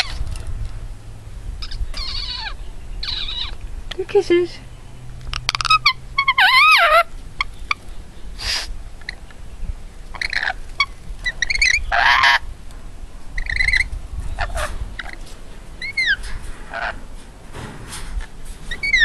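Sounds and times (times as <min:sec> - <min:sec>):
parrot calling and screeching: 0:01.6 - 0:03.6, 0:05.3 - 0:07.8, 0:10.1 - 0:12.4, 0:13.4 - 0:15.2, 0:15.8 - 0:17.0, 0:18.7 - 0:19.0.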